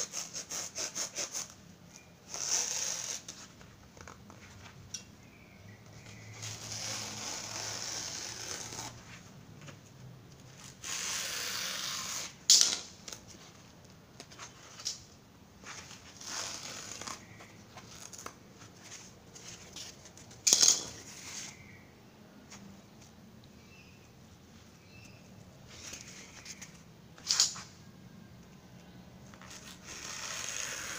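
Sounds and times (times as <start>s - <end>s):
utility knife cutting foam: 0.0s - 1.6s, 2.3s - 3.4s, 10.7s - 12.4s, 29.5s - 30.9s.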